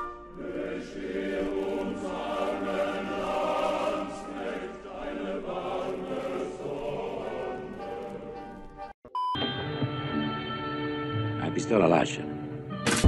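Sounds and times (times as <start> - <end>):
choir singing held chords: 0.0 - 9.0.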